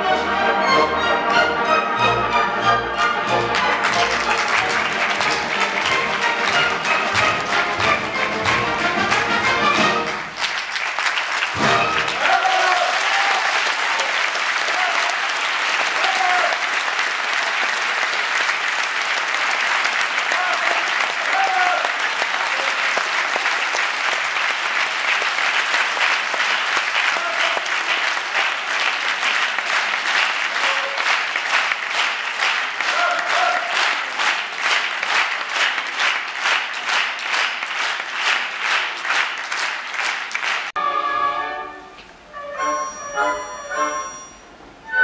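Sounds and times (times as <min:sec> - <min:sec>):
orchestral music: 0:00.0 - 0:10.8, 0:11.4 - 0:13.3, 0:40.8 - 0:45.0
audience applauding: 0:03.2 - 0:40.8.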